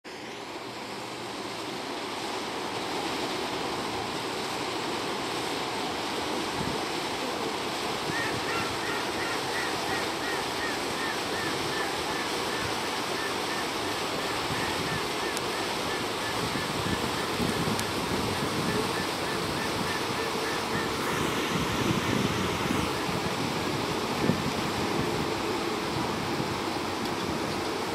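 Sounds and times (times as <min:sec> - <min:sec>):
water rushing from boat wake: 0:00.0 - 0:27.9
boat motor: 0:00.1 - 0:27.9
wind on microphone: 0:06.2 - 0:27.9.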